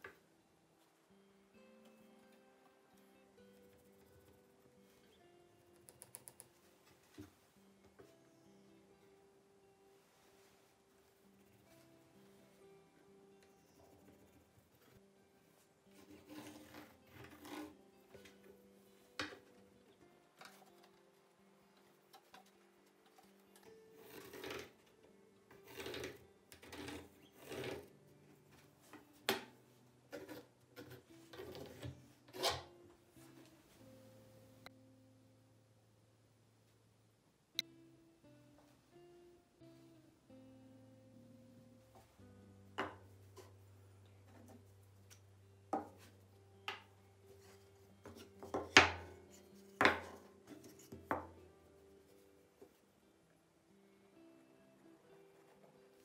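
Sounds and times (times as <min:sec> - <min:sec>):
pencil scratching on wood: 0:16.0 - 0:17.8, 0:24.0 - 0:24.8, 0:25.6 - 0:27.9
wood blocks knocking on wooden table: 0:42.8 - 0:43.0, 0:49.8 - 0:50.2.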